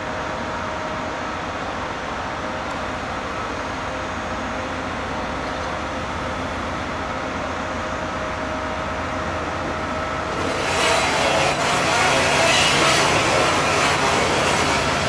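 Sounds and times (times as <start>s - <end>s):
rail grinding train droning: 0.0s - 15.0s.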